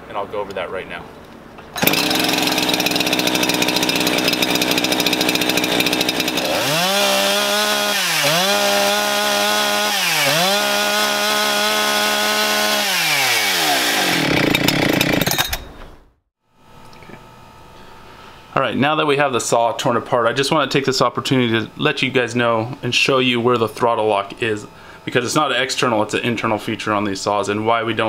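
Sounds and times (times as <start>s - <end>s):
starter cord pull: 1.8s - 2.6s
chainsaw running and revving: 1.8s - 15.4s.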